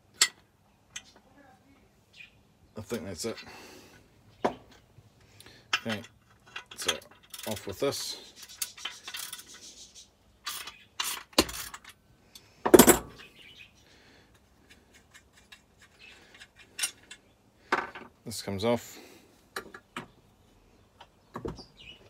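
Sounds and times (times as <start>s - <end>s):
steel tool fittings clinking: 5.7s - 9.6s, 10.4s - 12.5s.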